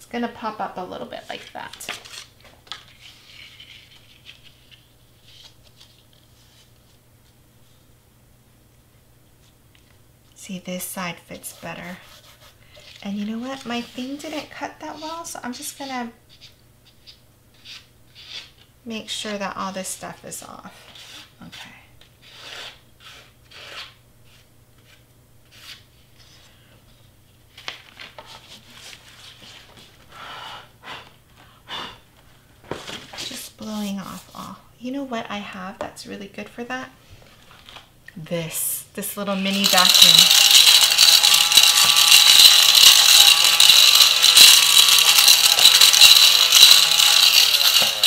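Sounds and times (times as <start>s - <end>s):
mini vacuum whirring: 39.5s - 48.0s.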